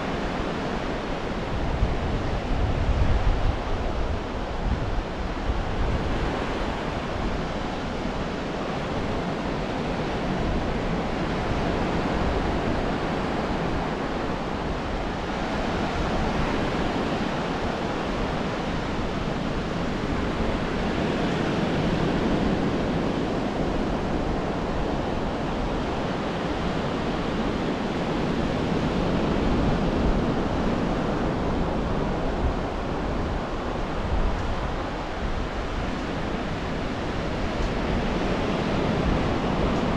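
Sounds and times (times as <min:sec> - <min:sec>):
ocean surf on sandy beach: 0:00.0 - 0:39.9
wind rumble on microphone: 0:00.0 - 0:39.9.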